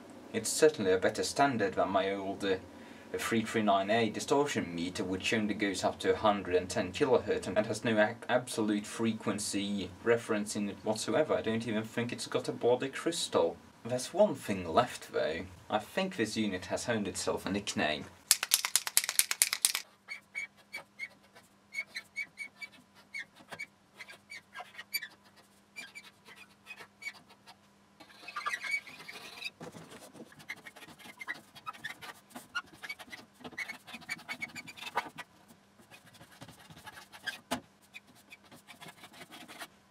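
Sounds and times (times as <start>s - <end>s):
marker pen squeaking on metal: 18.7s - 29.6s, 30.3s - 35.3s, 35.9s - 39.6s.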